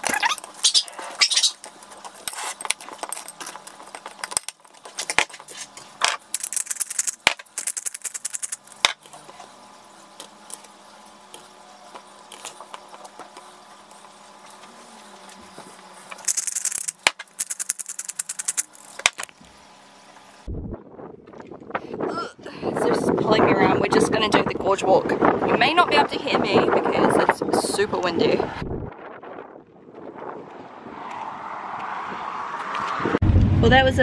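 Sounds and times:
pepper grinder clicking: 0:06.1 - 0:09.0, 0:16.2 - 0:19.3.

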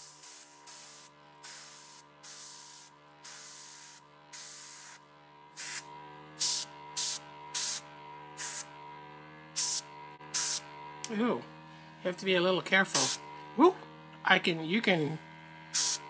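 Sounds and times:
airbrush hissing bursts: 0:00.0 - 0:08.7, 0:09.6 - 0:10.7, 0:12.9 - 0:13.3, 0:15.7 - 0:16.0
compressor motor hum: 0:00.0 - 0:16.0.

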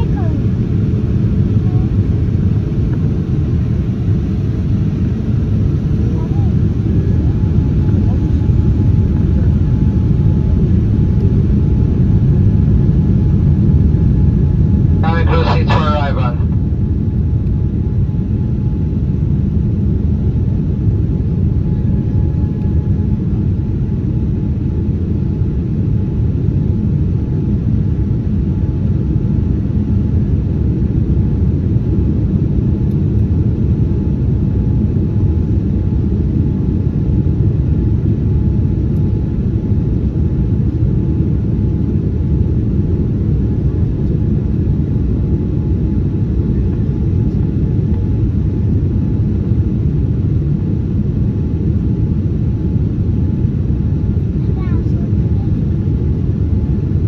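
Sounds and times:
faint steady whine: 0:00.0 - 0:26.8
airplane cabin rumble: 0:00.0 - 0:57.0.

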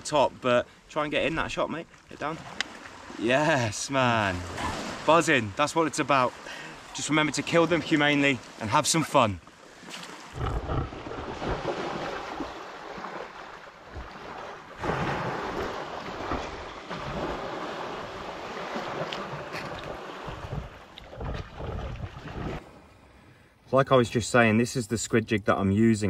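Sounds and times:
sea wash: 0:00.0 - 0:23.4
wind buffeting microphone: 0:19.5 - 0:22.6
low thumps: 0:20.3 - 0:22.6.

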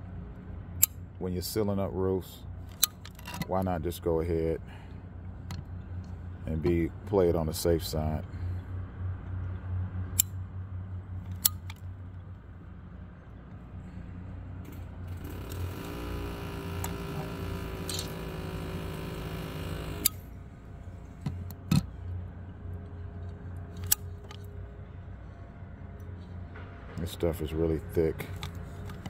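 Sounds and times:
low steady hum: 0:00.0 - 0:29.0
steady droning tone: 0:13.6 - 0:23.7
caulking gun clicking: 0:15.2 - 0:20.2.

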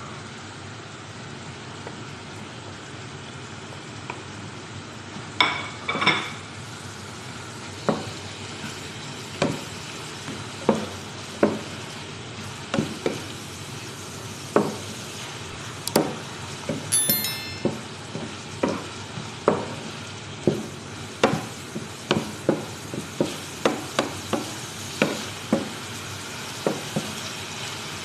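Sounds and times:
food sizzling in a frying pan: 0:05.1 - 0:15.4, 0:20.3 - 0:28.0.

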